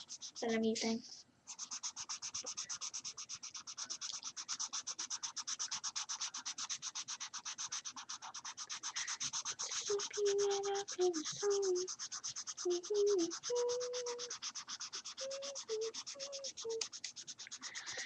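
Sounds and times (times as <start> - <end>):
marker scrubbing on paper: 0.0 - 18.0.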